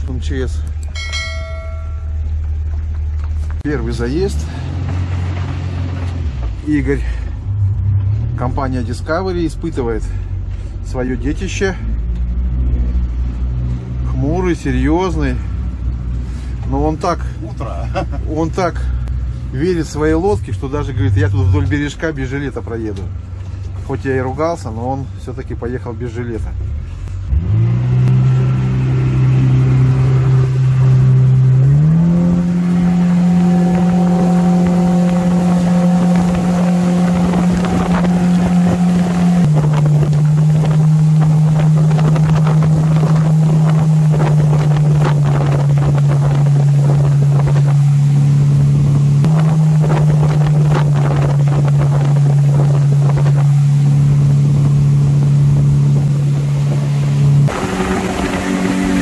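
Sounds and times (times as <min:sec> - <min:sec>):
boat engine at speed: 0:00.0 - 0:59.0
wind and water rush: 0:28.0 - 0:59.0.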